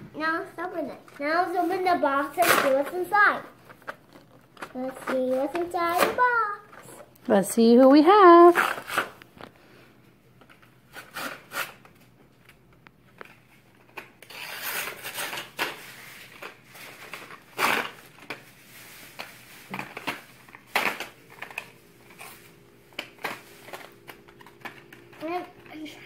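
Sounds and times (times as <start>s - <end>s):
sharp paper rips: 10.9s - 11.9s, 14.2s - 18.2s.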